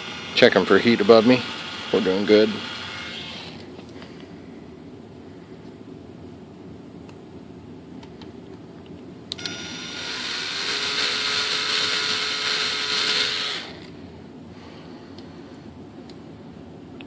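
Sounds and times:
hand tool whining: 0.0s - 3.7s, 9.4s - 13.9s.

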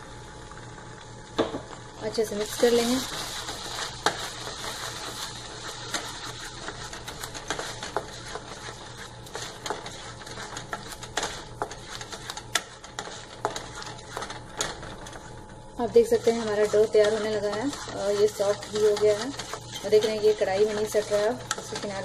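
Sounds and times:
low steady hum: 0.0s - 22.0s
spatula scraping a pan: 2.1s - 22.0s.

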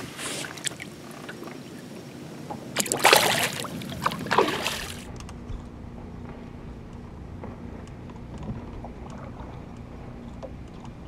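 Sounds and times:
fish splashing into water: 2.8s - 5.1s.

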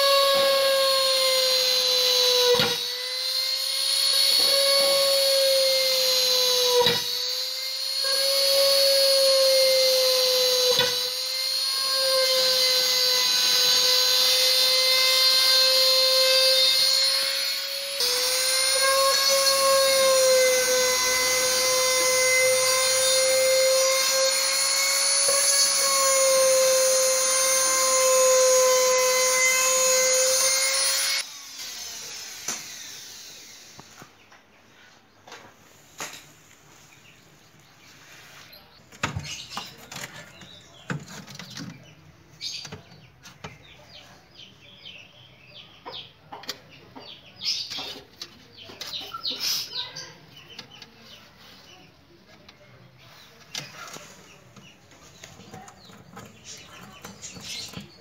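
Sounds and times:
rotary tool motor whining: 0.0s - 34.2s.

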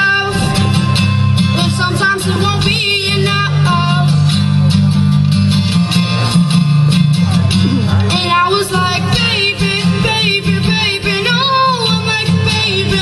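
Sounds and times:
boy singing: 0.0s - 0.8s, 1.6s - 4.1s, 7.6s - 13.0s
acoustic guitar strumming: 0.0s - 13.0s.

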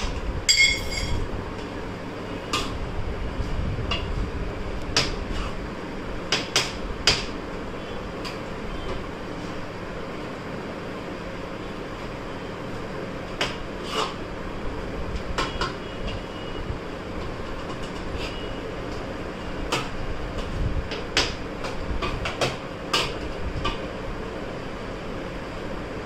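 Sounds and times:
fan humming: 0.0s - 26.0s
metal spoon clinking in steel bowl: 0.5s - 1.2s.

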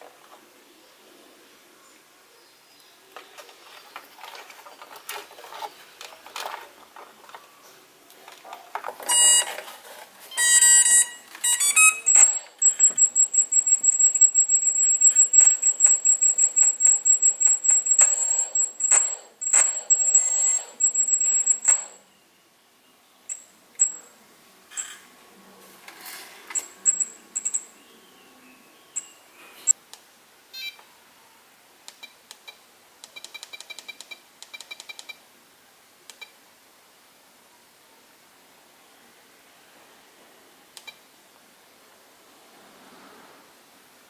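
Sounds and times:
electronic beeping: 9.1s - 9.5s, 10.3s - 22.0s, 26.5s - 27.7s.

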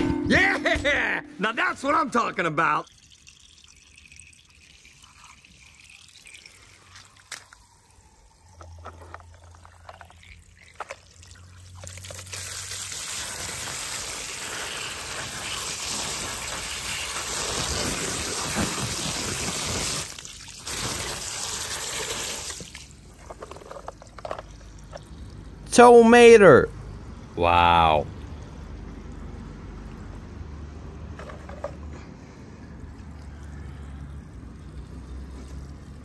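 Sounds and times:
water jet splashing on toy: 2.8s - 30.2s.

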